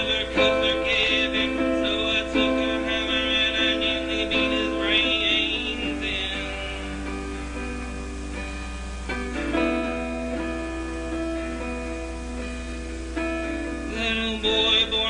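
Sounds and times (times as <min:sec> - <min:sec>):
acoustic guitar strumming chords: 0:00.0 - 0:15.0.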